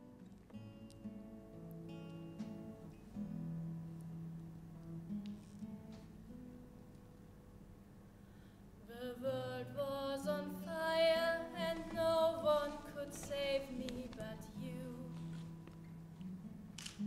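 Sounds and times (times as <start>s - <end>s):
acoustic guitar: 0.0s - 17.0s
woman singing: 8.8s - 15.5s.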